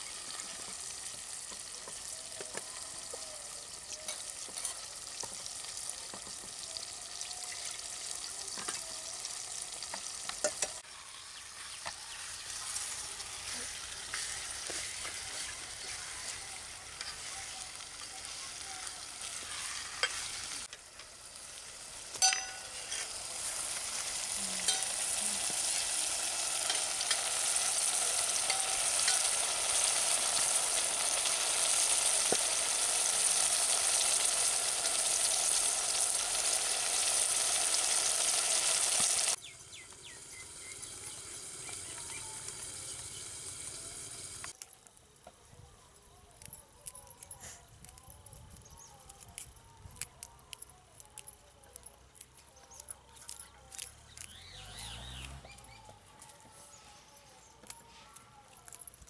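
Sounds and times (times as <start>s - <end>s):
curry sizzling in a pot: 0.0s - 44.6s
utensils knocking against pot: 22.2s - 23.0s.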